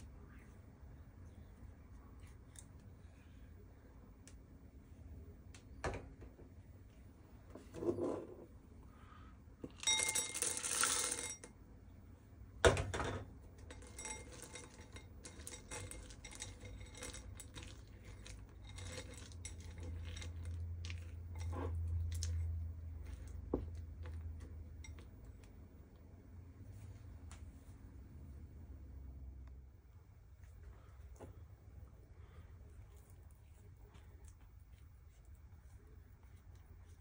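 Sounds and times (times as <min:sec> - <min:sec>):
chocolate chips rattling into bowl: 0:09.7 - 0:11.4, 0:13.7 - 0:21.5
spatula scraping bowl: 0:13.8 - 0:22.4.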